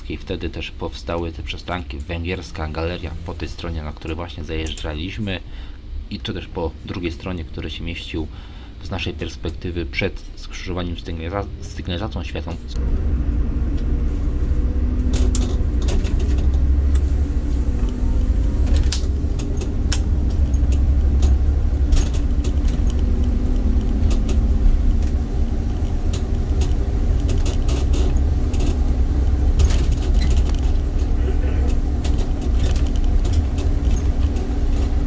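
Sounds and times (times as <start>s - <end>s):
bus engine drone: 0.0s - 35.0s
road rumble: 0.0s - 35.0s
cab clicks and rattles: 15.0s - 17.1s, 17.8s - 35.0s.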